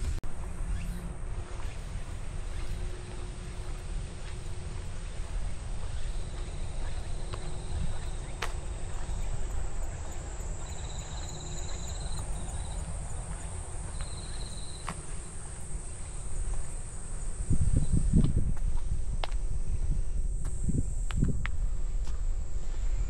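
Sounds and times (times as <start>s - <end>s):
insects buzzing: 0.0s - 23.0s
low rumble on microphone: 0.0s - 23.0s
pulsed insect trills: 0.3s - 23.0s.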